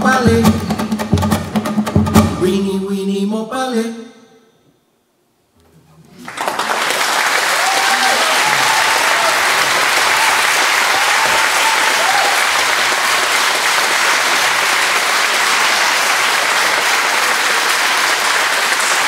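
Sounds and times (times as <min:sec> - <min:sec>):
audience applauding: 0:06.1 - 0:19.0.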